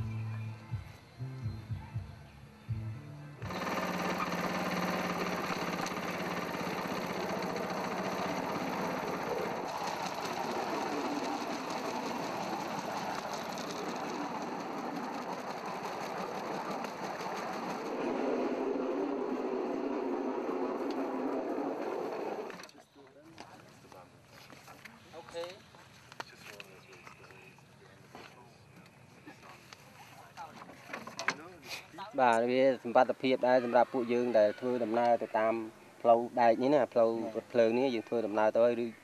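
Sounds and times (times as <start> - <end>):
wheels rattling on rails: 3.4 - 22.7
small engine running: 3.4 - 22.8.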